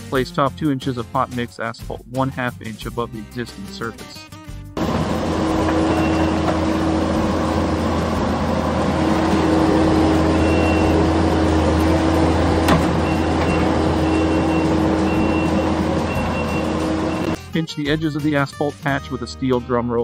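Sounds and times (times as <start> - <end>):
diesel loader engine running: 4.8 - 17.4
short high beeps: 10.2 - 11.1, 13.0 - 17.4.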